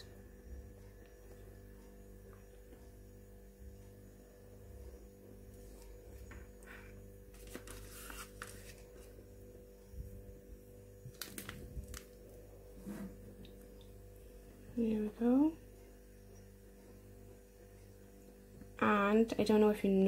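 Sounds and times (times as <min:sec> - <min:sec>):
low electrical hum: 0:00.0 - 0:20.0
plastic foil rustling: 0:07.3 - 0:09.1, 0:11.1 - 0:12.2.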